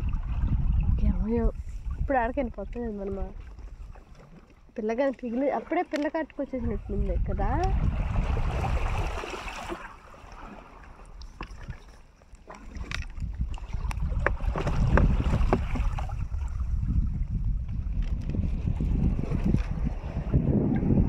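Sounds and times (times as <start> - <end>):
wind rumbling on microphone: 0.0 - 21.0
water splashes and drips: 1.6 - 17.4.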